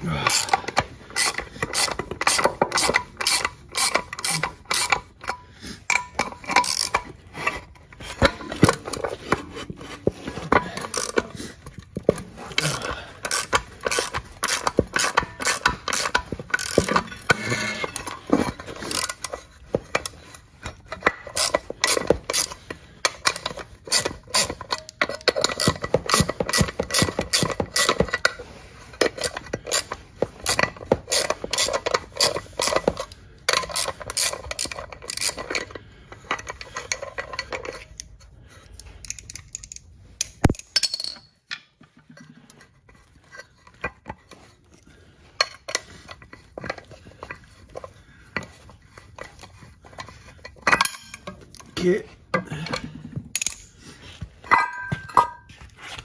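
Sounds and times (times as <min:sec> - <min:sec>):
ratchet wrench clicking: 0:00.2 - 0:07.1, 0:10.9 - 0:11.2, 0:12.8 - 0:18.2, 0:18.8 - 0:20.2, 0:21.0 - 0:28.3, 0:29.1 - 0:38.1, 0:38.8 - 0:41.2
metal parts clinking: 0:00.2 - 0:09.2, 0:10.5 - 0:38.2, 0:38.8 - 0:41.6, 0:49.1 - 0:53.8.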